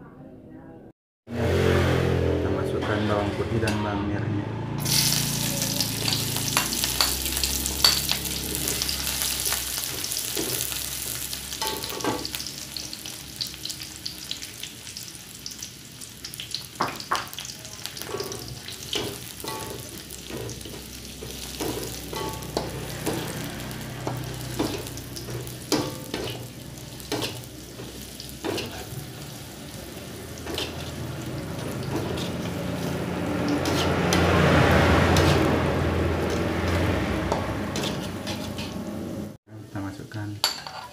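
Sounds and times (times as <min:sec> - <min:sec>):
garlic sizzling in hot oil: 0:04.8 - 0:39.4
metal spatula scraping pan: 0:18.0 - 0:29.4, 0:30.3 - 0:39.1.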